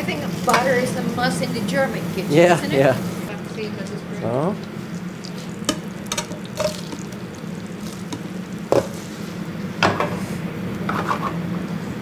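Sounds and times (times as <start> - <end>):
butter sizzling in a frying pan: 0.0 - 9.4
pan and utensils knocking: 5.7 - 7.0, 8.1 - 9.0.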